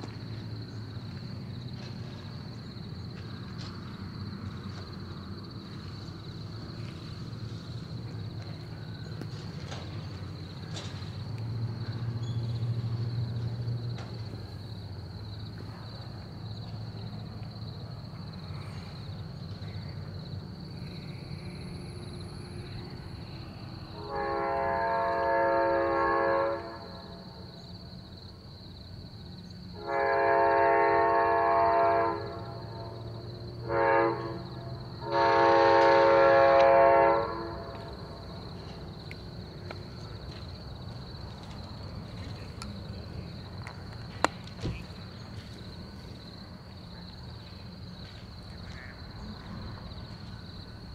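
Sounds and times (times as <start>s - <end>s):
distant train air horn blasts: 23.9s - 27.6s, 29.7s - 38.4s.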